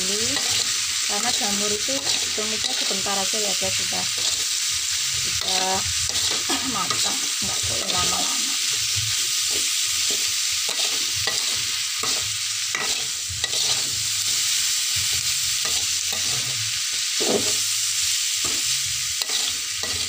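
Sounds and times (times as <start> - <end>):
food sizzling in a wok: 0.0 - 20.0
metal spatula scraping: 0.2 - 8.2, 9.4 - 14.0, 15.6 - 16.6, 17.2 - 17.6, 18.4 - 20.0.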